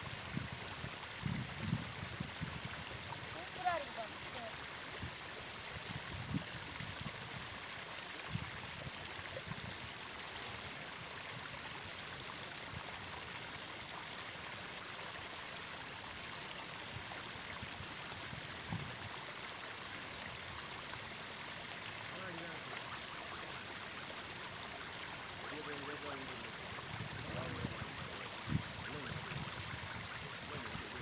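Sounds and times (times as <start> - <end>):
river water rushing: 2.9 - 5.7, 19.0 - 31.0.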